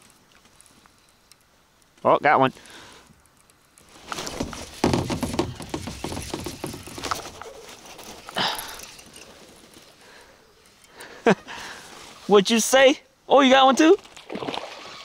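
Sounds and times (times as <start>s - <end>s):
water splashing: 4.0s - 7.6s, 13.9s - 15.0s.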